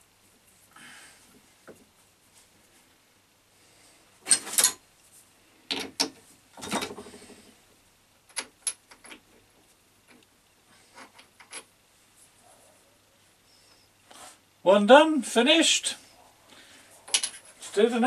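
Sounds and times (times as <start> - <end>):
metal tools clattering: 17.1 - 17.8.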